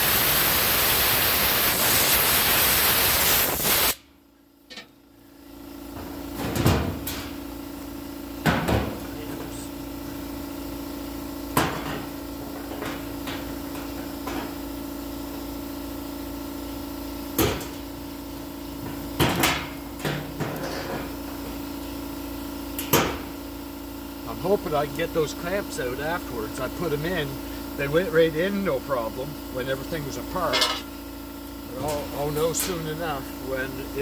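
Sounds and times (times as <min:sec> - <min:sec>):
steady hum: 0:00.0 - 0:16.3, 0:17.2 - 0:34.0
metal clamps clanking on sheet metal: 0:04.7 - 0:04.9, 0:30.5 - 0:30.9.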